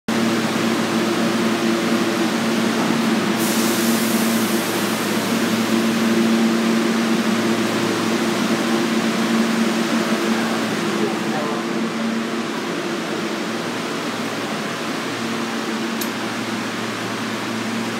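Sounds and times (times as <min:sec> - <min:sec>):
low machinery hum: 0:00.1 - 0:17.9.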